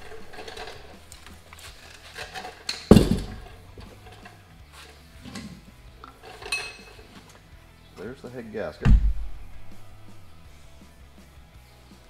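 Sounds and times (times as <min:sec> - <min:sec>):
small metal clanks: 0:00.0 - 0:04.4, 0:05.2 - 0:07.4
heavy thud on concrete: 0:02.9 - 0:03.6, 0:08.8 - 0:09.7.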